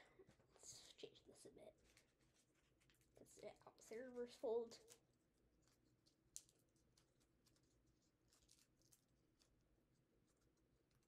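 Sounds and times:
paper crinkling and clicking: 0:01.7 - 0:03.9, 0:04.8 - 0:11.0
paper crackle: 0:01.7 - 0:11.0.

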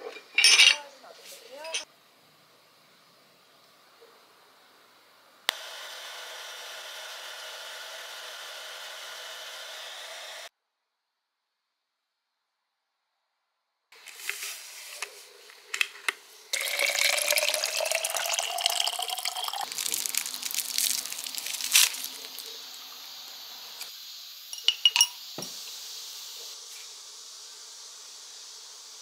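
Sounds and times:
faint steady hiss: 0:14.0 - 0:29.0
water pouring into bottle: 0:16.5 - 0:22.5
wrapper crinkling: 0:16.6 - 0:22.6
powder tipped into bottle: 0:19.7 - 0:22.4.

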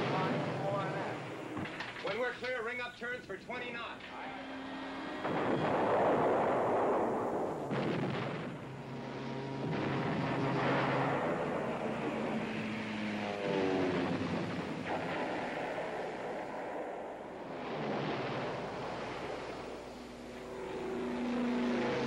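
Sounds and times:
explosion blasts: 0:00.0 - 0:02.3, 0:04.0 - 0:22.0
anti-aircraft gunfire: 0:00.0 - 0:02.9, 0:03.6 - 0:22.0
aircraft engines droning: 0:00.0 - 0:07.8, 0:08.4 - 0:22.0.

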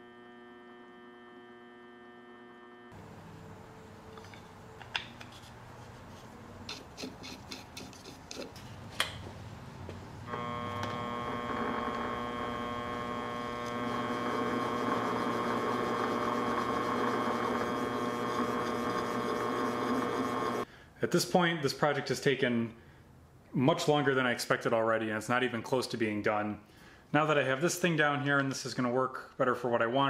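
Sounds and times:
metal lathe motor whine: 0:00.0 - 0:02.9, 0:10.3 - 0:20.6
handling clicks and scrapes: 0:04.1 - 0:09.2.

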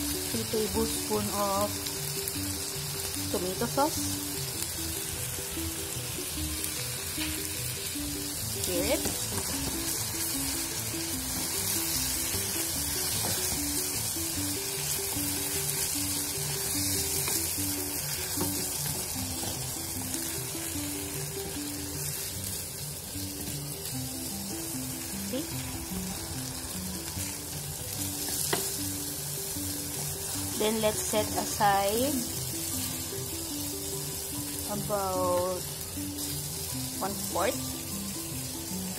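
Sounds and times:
background music: 0:00.0 - 0:38.9
food sizzling in a frying pan: 0:00.0 - 0:38.9.

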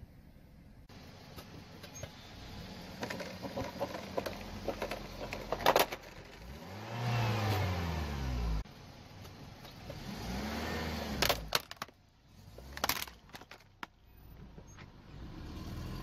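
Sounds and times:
car engine running: 0:00.9 - 0:14.5
tyres rolling on asphalt: 0:01.2 - 0:16.0
clicks and crackles: 0:03.0 - 0:06.5, 0:11.2 - 0:12.0, 0:12.6 - 0:14.0.

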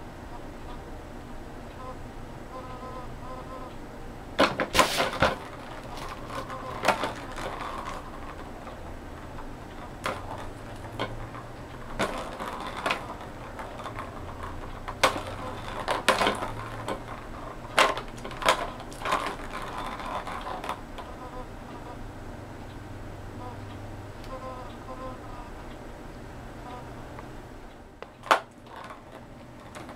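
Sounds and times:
plastic ball rattling in track: 0:04.4 - 0:21.2, 0:28.0 - 0:29.9.

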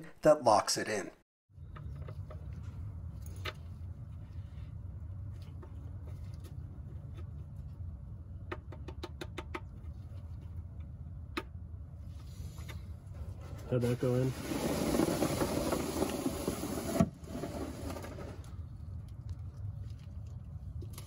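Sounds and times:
steady low hum: 0:01.5 - 0:14.3, 0:18.2 - 0:21.0.

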